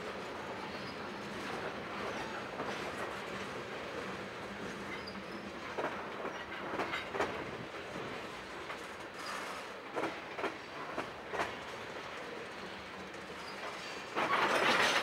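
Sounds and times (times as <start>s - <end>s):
steel train wheels rumbling on rail: 0.0s - 15.0s
wheels clacking over rail joints: 13.0s - 15.0s.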